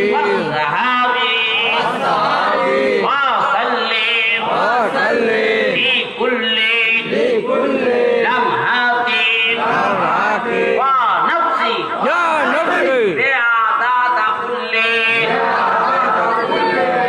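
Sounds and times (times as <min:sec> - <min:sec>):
men chanting together: 0:00.0 - 0:11.2, 0:12.0 - 0:17.0.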